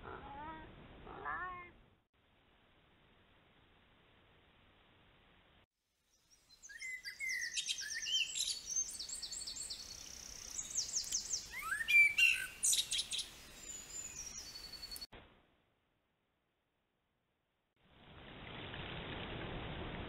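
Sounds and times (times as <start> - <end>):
songbird singing trills: 6.2 - 15.1.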